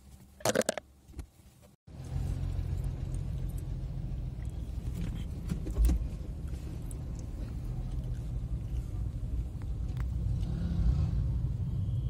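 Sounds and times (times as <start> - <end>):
vehicle engine rumbling: 0.1 - 12.0.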